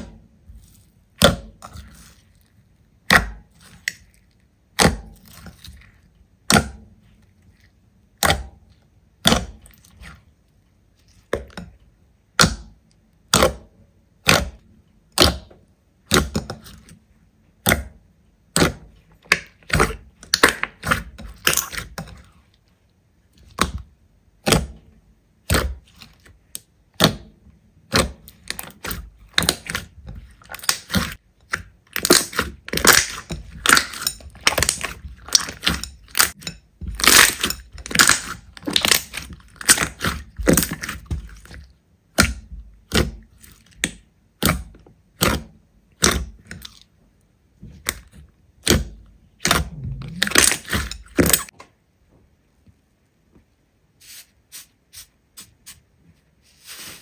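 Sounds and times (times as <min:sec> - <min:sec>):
slime popping and crackling: 0:27.9 - 0:43.2, 0:47.8 - 0:51.5.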